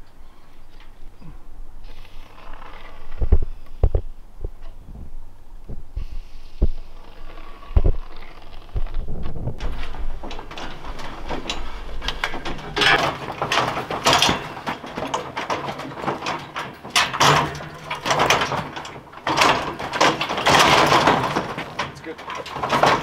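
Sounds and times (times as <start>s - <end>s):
scaffold rolling on casters: 7.1s - 23.0s
scaffolding clicks and rattles: 8.3s - 23.0s.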